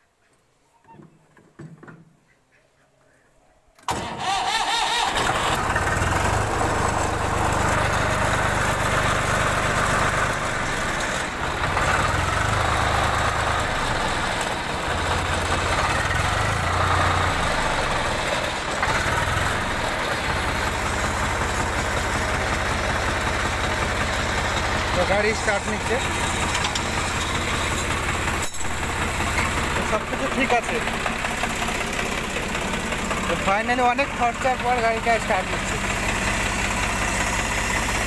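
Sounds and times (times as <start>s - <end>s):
tractor diesel engine running: 3.9s - 38.0s.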